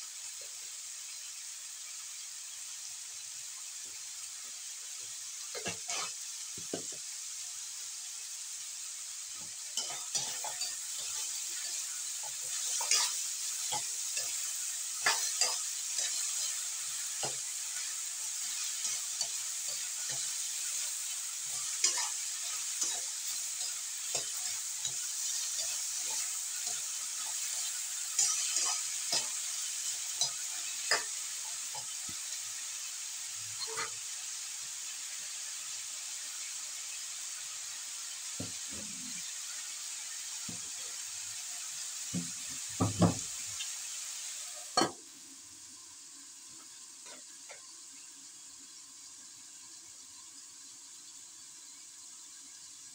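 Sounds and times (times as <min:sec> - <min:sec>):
vegetables sizzling in a wok: 0:00.0 - 0:52.9
utensil scraping a wok: 0:05.5 - 0:06.9, 0:09.4 - 0:32.2, 0:33.5 - 0:34.1.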